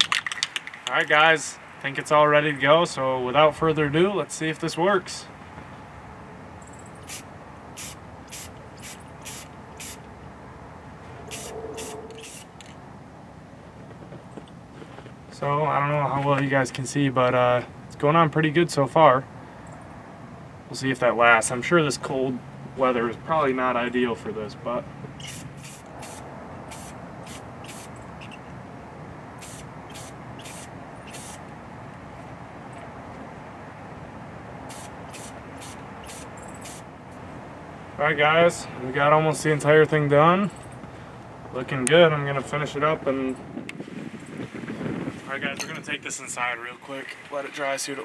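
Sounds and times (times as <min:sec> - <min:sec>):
spray paint can hissing: 0:07.0 - 0:10.0, 0:11.3 - 0:12.5, 0:25.2 - 0:28.4, 0:29.4 - 0:31.4, 0:34.7 - 0:36.8.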